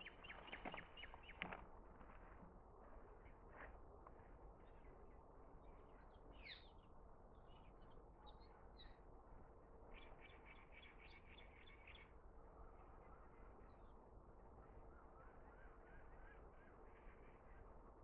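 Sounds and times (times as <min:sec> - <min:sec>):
small birds chirping: 0:00.0 - 0:09.0, 0:09.8 - 0:12.2.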